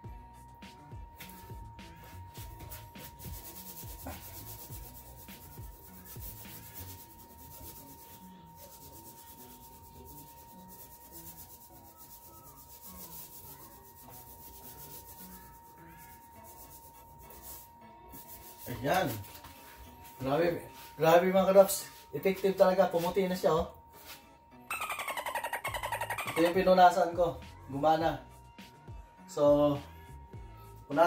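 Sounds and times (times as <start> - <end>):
cloth towel scrubbing a wall: 1.2 - 24.1.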